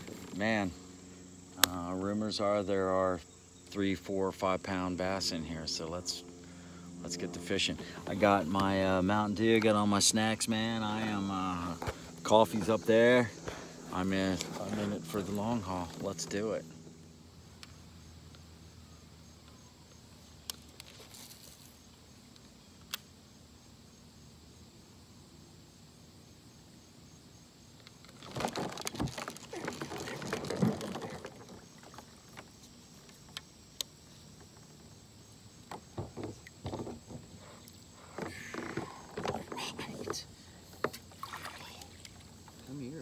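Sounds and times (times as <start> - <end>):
knocking and rustling: 35.7 - 37.5.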